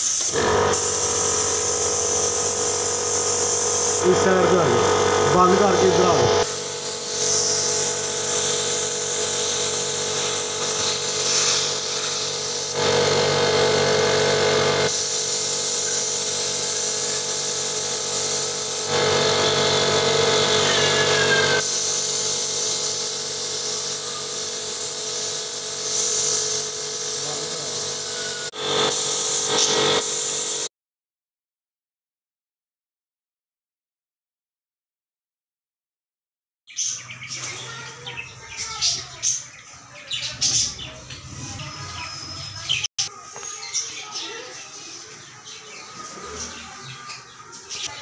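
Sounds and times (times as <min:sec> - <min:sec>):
paint spray gun hissing: 0:00.0 - 0:30.7
steady motor hum: 0:00.0 - 0:30.7.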